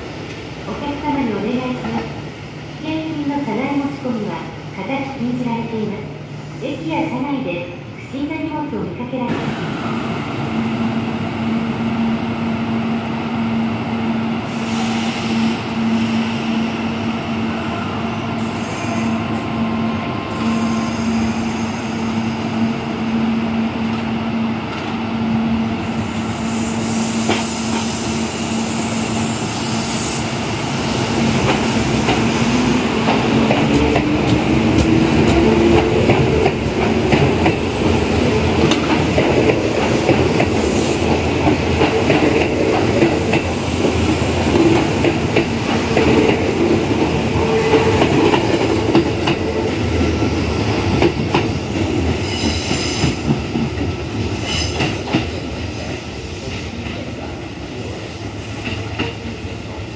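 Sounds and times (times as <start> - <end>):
electric train hum: 0.0 - 59.9
train wheels on rails: 14.4 - 22.9, 23.8 - 59.9.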